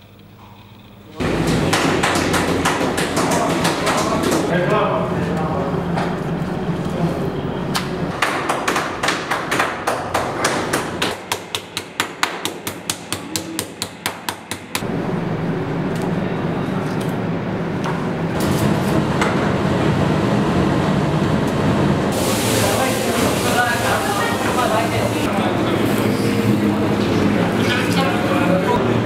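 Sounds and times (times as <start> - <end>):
steady background noise: 0.0 - 29.0
meat mallet pounding meat: 1.2 - 4.5, 8.2 - 14.8.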